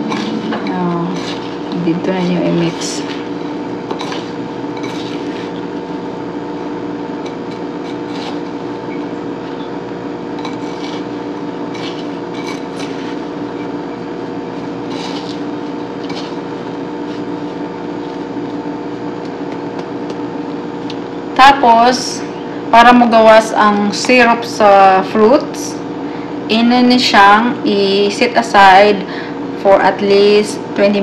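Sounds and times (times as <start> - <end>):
spatula scraping glass bowl: 0.0 - 5.8, 7.2 - 8.6, 10.4 - 13.8, 14.8 - 17.3
steady hum: 0.0 - 31.0.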